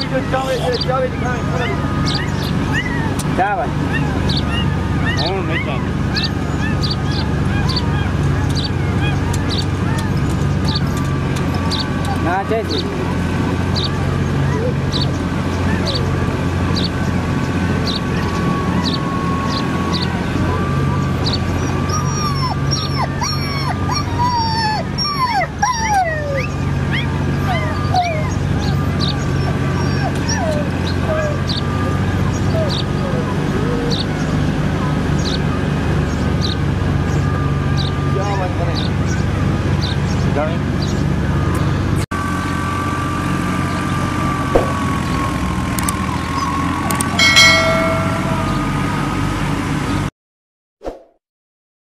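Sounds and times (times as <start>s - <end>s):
puppies whimpering: 0.0s - 40.2s, 44.5s - 48.6s
low engine rumble: 0.0s - 50.1s
thin wavering whine: 44.0s - 49.7s
low hum: 46.9s - 50.0s
short high-pitched tone: 47.2s - 49.5s.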